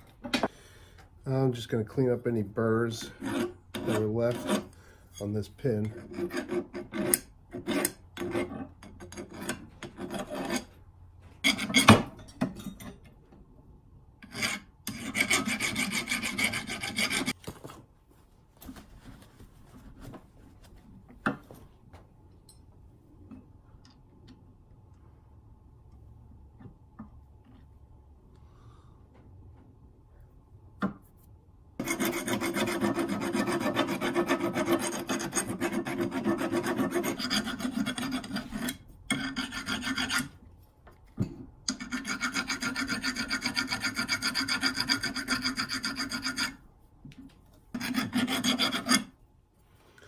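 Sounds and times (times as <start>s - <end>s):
file rasping on metal: 3.0s - 4.8s, 5.8s - 10.8s, 11.4s - 12.0s, 14.2s - 17.4s, 31.8s - 40.4s, 41.7s - 46.6s, 47.7s - 49.2s.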